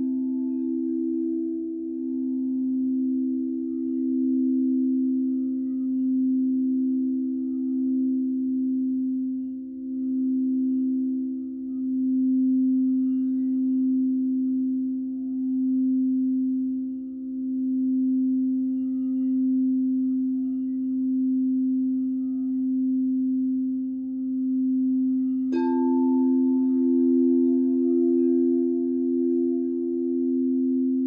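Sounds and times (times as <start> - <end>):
crystal singing bowl deep tone: 0.0 - 31.0
crystal bowl struck ringing higher: 17.3 - 31.0.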